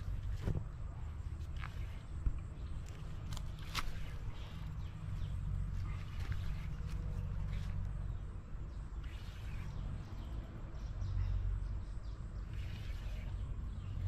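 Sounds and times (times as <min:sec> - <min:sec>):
low outdoor rumble: 0:00.0 - 0:14.0
faint bird chirps: 0:03.8 - 0:14.0.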